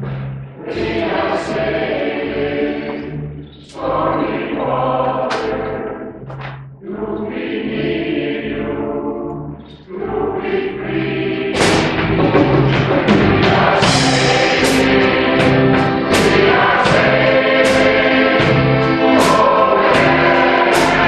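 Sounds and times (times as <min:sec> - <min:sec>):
choir singing: 0:00.6 - 0:06.2, 0:06.8 - 0:21.0
drum kit: 0:11.6 - 0:21.0.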